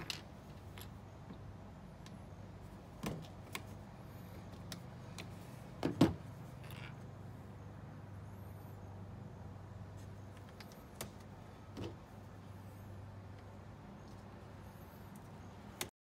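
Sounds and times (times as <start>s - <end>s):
steady low hum: 0.0s - 15.9s.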